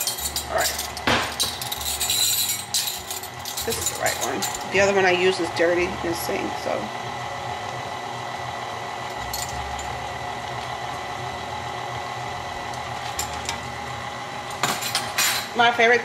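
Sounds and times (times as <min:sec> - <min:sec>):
clattering clinks: 0:00.0 - 0:04.7
stand mixer motor hum: 0:05.0 - 0:13.0.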